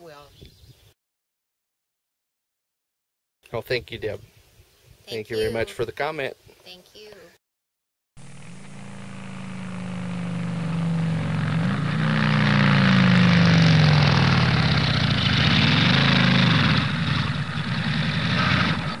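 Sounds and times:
engine revving: 0:08.2 - 0:19.0.

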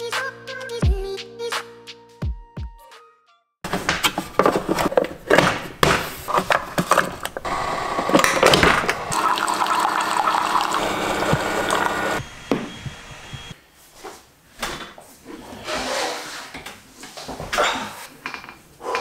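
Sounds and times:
coffee maker humming and pouring: 0:07.2 - 0:12.2.

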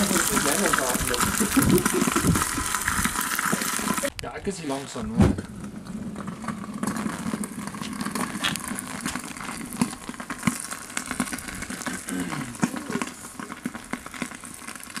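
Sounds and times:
fish crackling and sizzling: 0:00.0 - 0:04.2, 0:04.8 - 0:15.0
sharp pops: 0:05.1 - 0:15.0.

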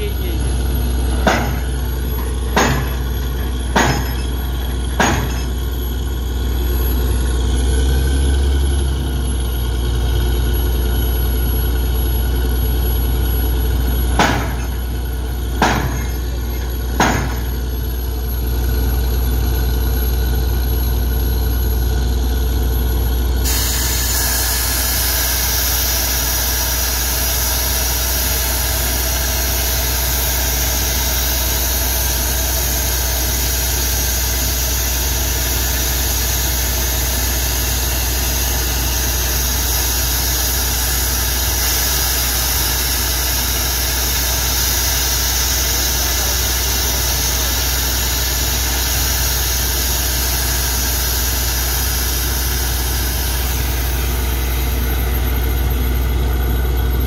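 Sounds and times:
drilling rig engine drone: 0:00.0 - 0:57.0
sharp knocks: 0:01.1 - 0:01.8, 0:02.5 - 0:05.6, 0:14.1 - 0:14.9, 0:15.6 - 0:17.6
hiss: 0:23.5 - 0:55.0.

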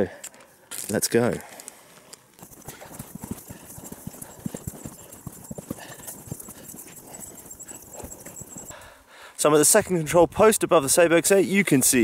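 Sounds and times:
footsteps on mountain path: 0:01.6 - 0:09.0.

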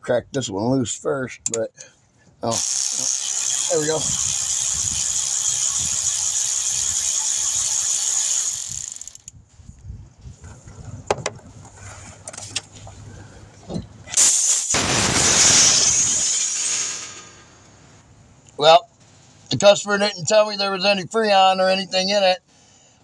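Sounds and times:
electric ratchet running: 0:02.5 - 0:09.3, 0:15.5 - 0:17.4
hand ratchet clicks: 0:02.5 - 0:09.4
loud gas hiss: 0:14.2 - 0:17.6.

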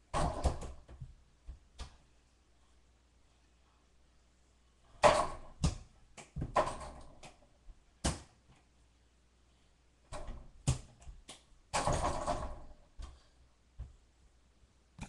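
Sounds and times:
sharp knocks and thumps: 0:05.0 - 0:07.3.

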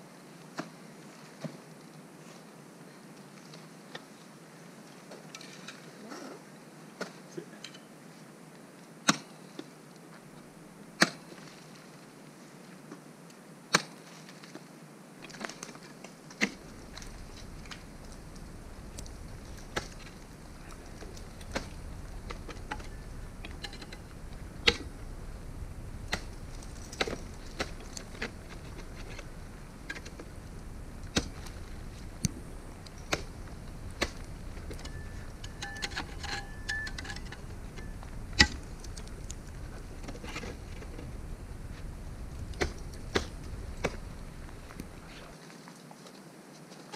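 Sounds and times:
ice axe striking ice: 0:16.4 - 0:24.9, 0:26.1 - 0:30.4, 0:32.8 - 0:39.4
low rumble: 0:16.6 - 0:45.3.

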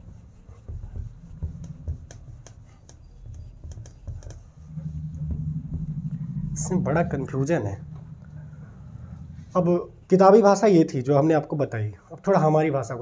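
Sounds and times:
duster wiping whiteboard: 0:00.0 - 0:07.8
low hum: 0:00.0 - 0:10.8.

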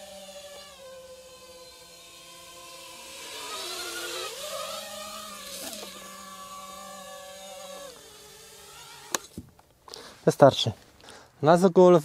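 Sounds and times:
drone propellers whining: 0:00.0 - 0:09.4.

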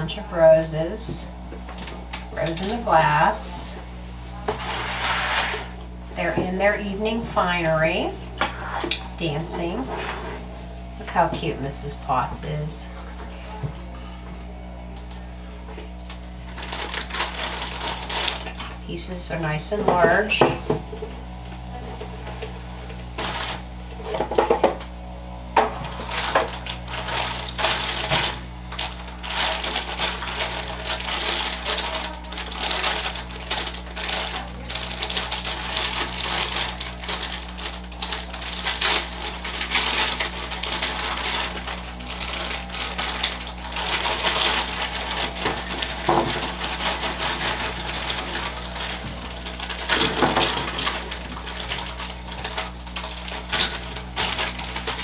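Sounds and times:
plastic bag crinkling: 0:15.9 - 0:18.9, 0:23.0 - 0:24.4, 0:25.8 - 0:55.0.

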